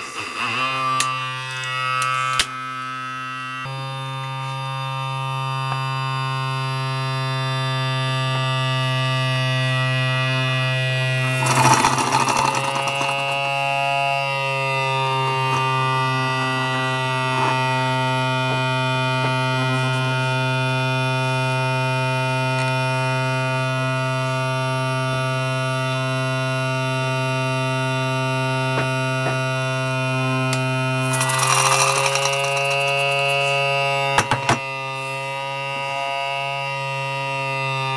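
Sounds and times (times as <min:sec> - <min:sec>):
air pump humming: 0:11.1 - 0:13.8, 0:30.9 - 0:35.8.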